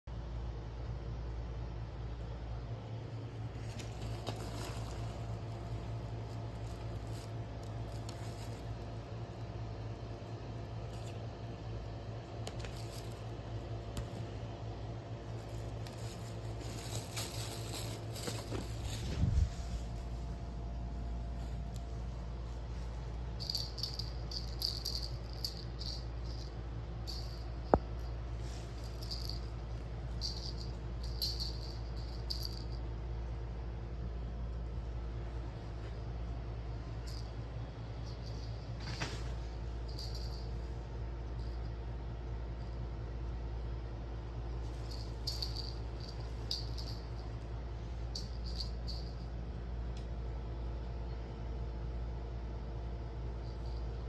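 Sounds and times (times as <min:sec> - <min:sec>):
steady low hum: 0:00.0 - 0:54.0
cat toy rattling: 0:23.2 - 0:32.8, 0:37.0 - 0:40.7, 0:44.7 - 0:47.4, 0:48.1 - 0:49.3.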